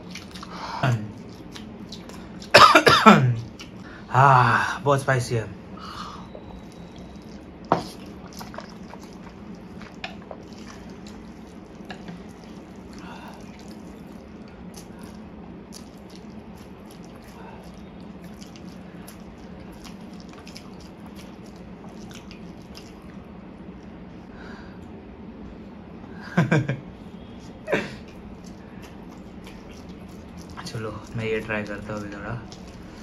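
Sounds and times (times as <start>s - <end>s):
slurping and chewing noodles: 0.0s - 2.6s, 6.1s - 23.8s, 28.0s - 33.0s.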